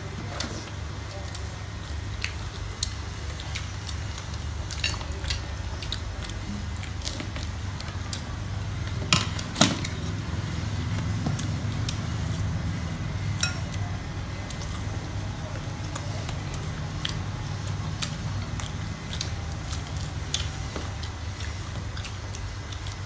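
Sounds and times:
steady low hum: 0.0s - 23.0s
cutlery clicking on trays: 13.4s - 13.8s.

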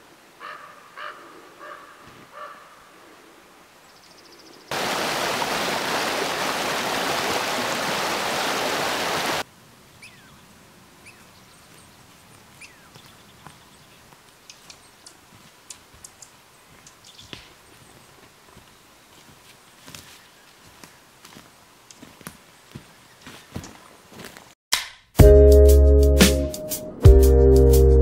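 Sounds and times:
loud rushing water: 4.7s - 9.5s
bird chirps: 10.0s - 12.0s, 12.6s - 18.0s
faint ticks and snaps: 14.2s - 17.5s.

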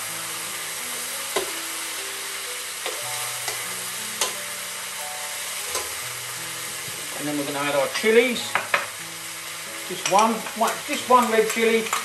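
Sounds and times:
soft background music: 0.0s - 12.0s
vegetables sizzling in a wok: 0.0s - 12.0s
metal spoon clicking on pan: 4.2s - 4.4s, 5.7s - 6.0s.

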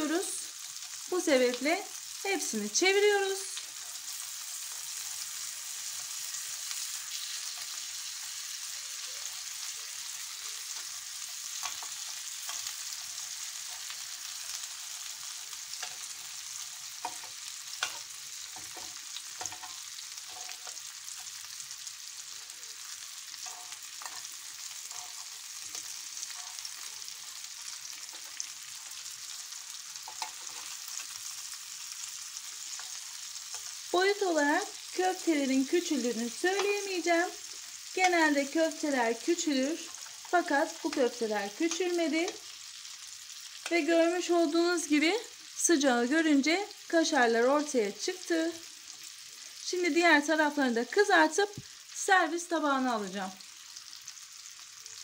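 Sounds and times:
meatballs sizzling in oil: 0.0s - 55.0s
metal tongs tapping pan: 11.5s - 12.9s, 15.7s - 16.2s, 16.9s - 21.4s, 23.4s - 27.0s, 30.0s - 31.0s, 35.8s - 36.9s.

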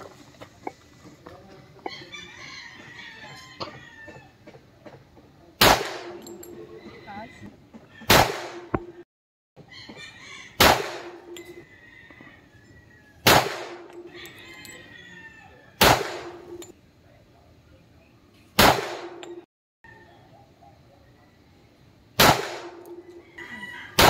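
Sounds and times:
pistol shots: 5.6s - 6.5s, 8.1s - 9.0s, 10.6s - 11.4s, 13.2s - 14.1s, 15.8s - 16.7s, 18.6s - 19.4s, 22.2s - 23.0s
steel plate target ringing: 16.0s - 16.7s, 19.0s - 19.4s.

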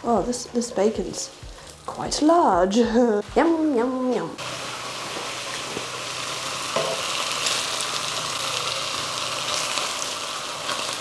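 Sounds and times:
bacon sizzling in butter: 4.4s - 11.0s.

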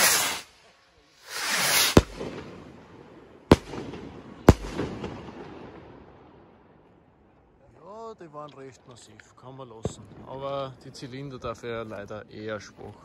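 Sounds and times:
firework bangs echoing: 0.0s - 0.5s, 1.3s - 6.7s
rocket rushing up: 0.0s - 0.6s, 1.2s - 2.6s.

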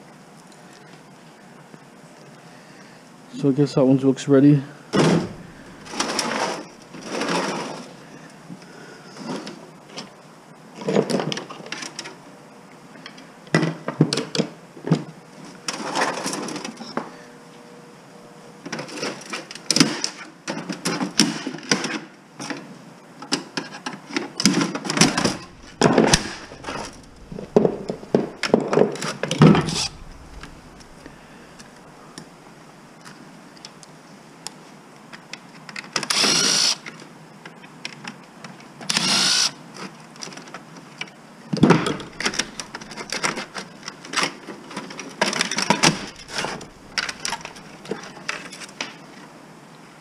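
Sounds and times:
metal computer case clattering: 24.9s - 28.8s, 41.6s - 43.7s, 45.4s - 48.1s.

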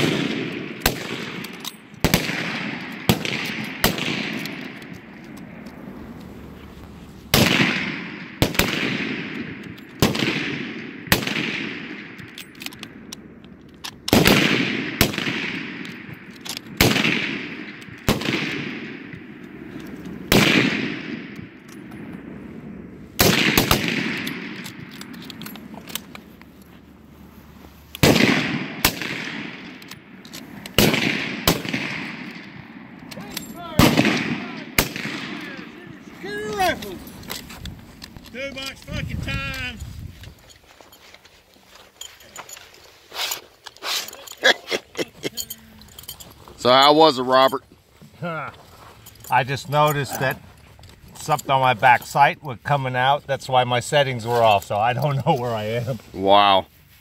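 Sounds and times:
rifle shots with echo: 0.0s - 5.9s, 7.3s - 13.2s, 14.0s - 25.4s, 28.0s - 37.3s.

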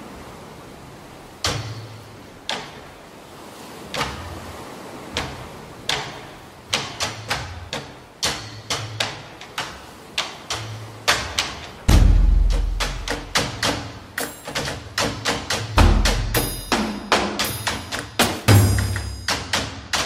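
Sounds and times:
sharp thuds with low boom: 11.9s - 12.8s.

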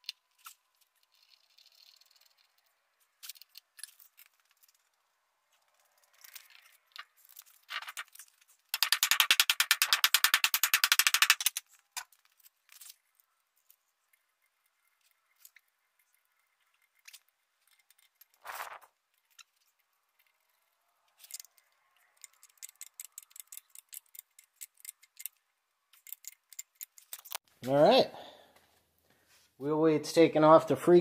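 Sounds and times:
fast run of nut clicks: 8.7s - 11.7s, 22.2s - 27.4s
small metal clicks and taps: 19.2s - 27.4s.

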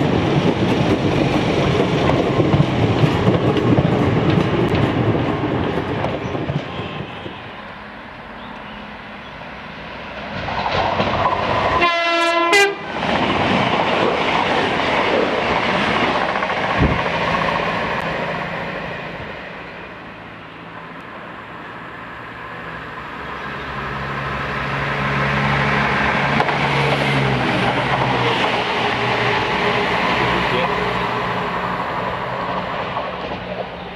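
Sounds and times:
train passing with low hum: 0.0s - 33.9s
train passing with wheel clatter: 0.0s - 33.9s
train horn blast: 11.8s - 13.0s.

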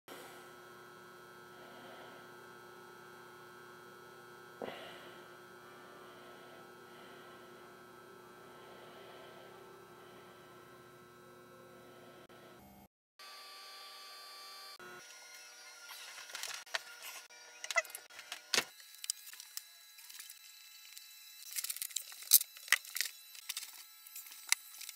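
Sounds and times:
electrical hum: 0.1s - 12.9s.

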